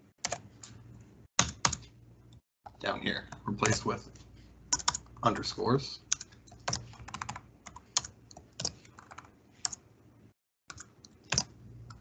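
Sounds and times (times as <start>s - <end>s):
typing on computer keyboard: 1.4s - 1.8s, 4.7s - 5.1s, 6.1s - 9.8s, 10.7s - 12.0s.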